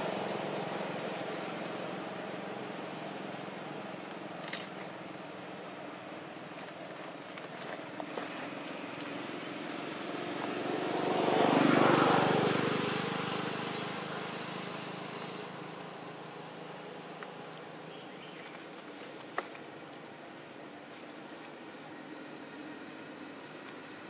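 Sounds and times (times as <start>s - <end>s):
passing vehicle engine: 0.0s - 4.9s, 7.8s - 17.6s
insects chirring: 0.0s - 24.0s.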